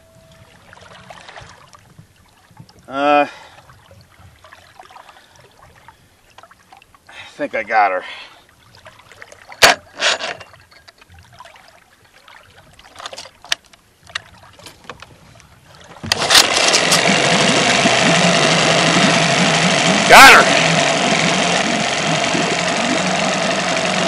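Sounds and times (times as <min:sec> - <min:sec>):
outboard motor running: 0:15.8 - 0:24.0.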